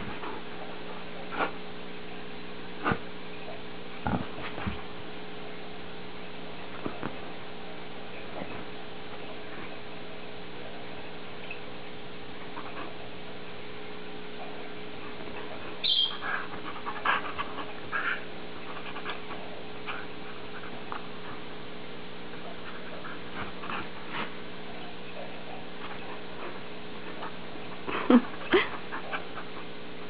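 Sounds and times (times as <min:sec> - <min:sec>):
dog snorting: 0:16.1 - 0:21.6, 0:22.5 - 0:24.5.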